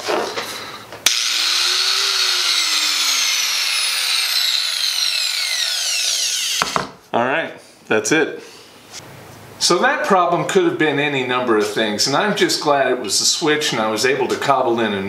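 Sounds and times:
angle grinder motor whine: 0:01.0 - 0:06.9.

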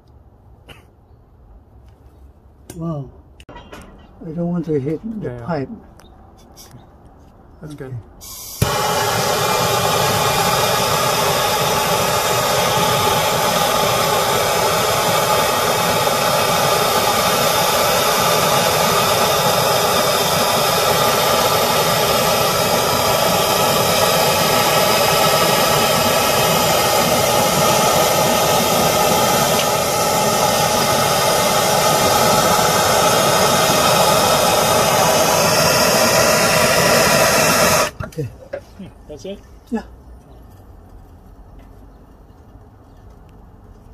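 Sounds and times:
gas torch flame hissing: 0:08.2 - 0:38.2.

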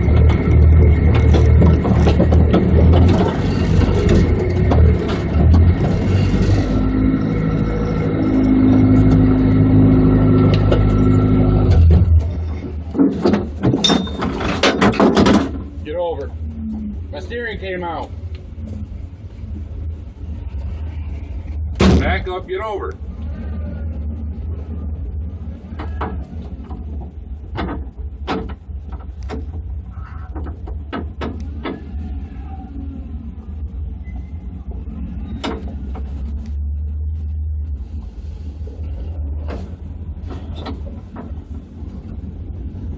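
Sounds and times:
rattling and knocks: 0:00.0 - 0:06.8, 0:10.4 - 0:15.8, 0:25.6 - 0:32.0
off-road vehicle engine: 0:00.0 - 0:42.9.

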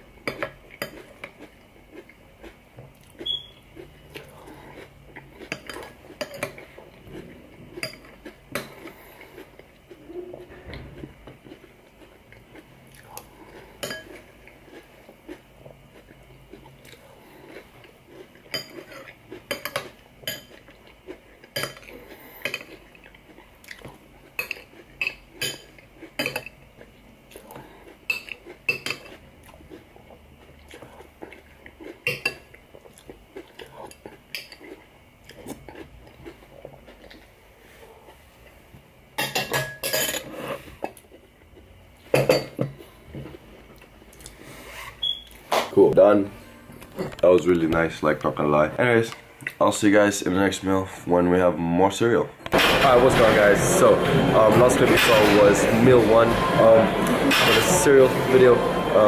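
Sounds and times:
crunchy chewing: 0:00.4 - 0:38.6.

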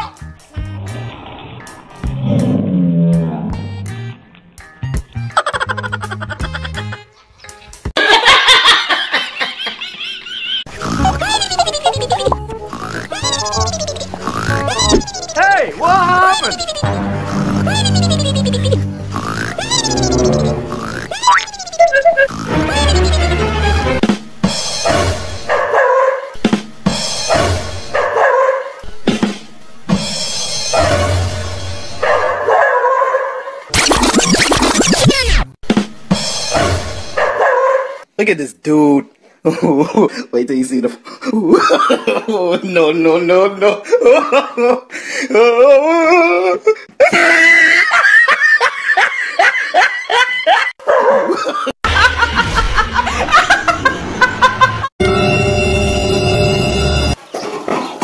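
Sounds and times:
young woman laughing loudly: 0:05.3 - 0:07.0, 0:08.0 - 0:15.4, 0:16.0 - 0:17.0, 0:17.6 - 0:18.8, 0:19.5 - 0:23.4, 0:47.0 - 0:54.9
person laughing in short bursts: 0:10.8 - 0:15.5, 0:16.1 - 0:18.8.

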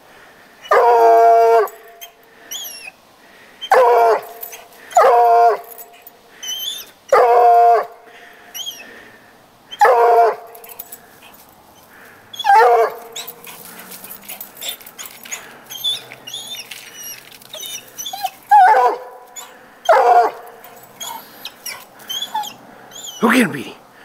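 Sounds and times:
dog baying: 0:09.8 - 0:23.2
rustling and clicks: 0:12.9 - 0:18.5.

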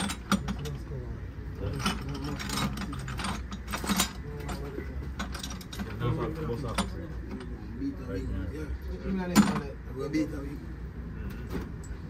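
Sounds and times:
metallic clicks and clanks: 0:00.0 - 0:01.0, 0:01.6 - 0:07.5.

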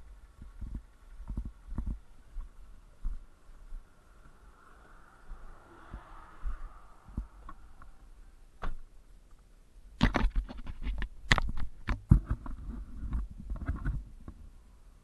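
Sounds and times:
rustling clicks and knocks: 0:10.0 - 0:14.4.

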